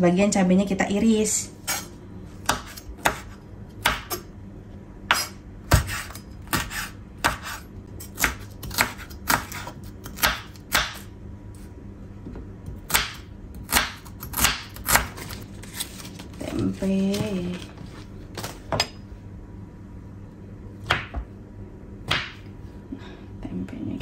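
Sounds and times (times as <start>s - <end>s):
knife chopping on wooden board: 1.7s - 4.2s, 5.1s - 11.0s, 12.8s - 15.3s, 20.8s - 21.3s, 22.1s - 22.5s.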